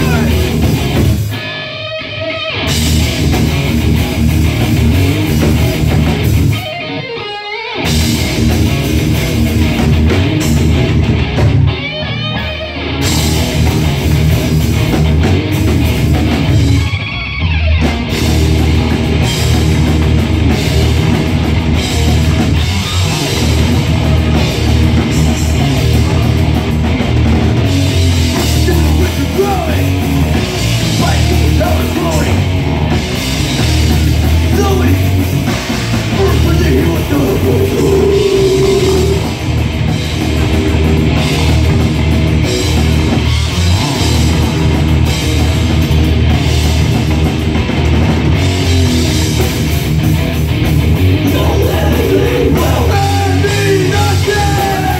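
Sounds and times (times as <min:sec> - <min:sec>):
live heavy rock band: 0:00.0 - 0:54.9
wavering guitar note: 0:36.8 - 0:39.6.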